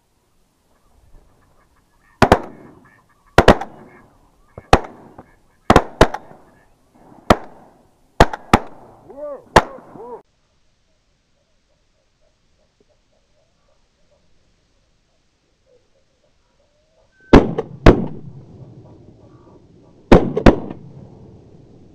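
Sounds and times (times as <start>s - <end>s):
waterfowl honking: 0.7s - 6.8s, 18.8s - 20.0s
shotgun shots echoing: 2.2s - 2.8s, 3.4s - 3.9s, 4.6s - 6.5s, 7.1s - 10.1s, 17.3s - 18.6s, 20.1s - 21.1s.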